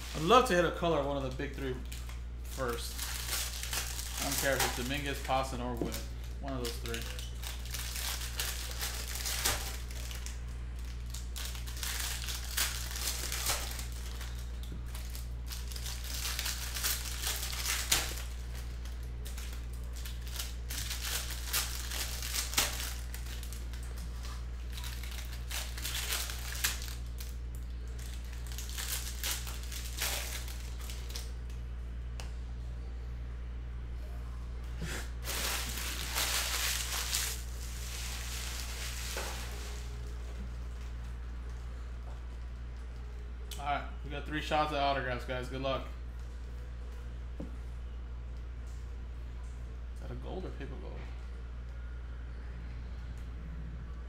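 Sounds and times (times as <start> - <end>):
foil wrappers crinkling and tearing: 0.0 - 31.6, 35.0 - 41.6
steady low hum: 0.0 - 54.0
cards rustling: 35.2 - 40.2.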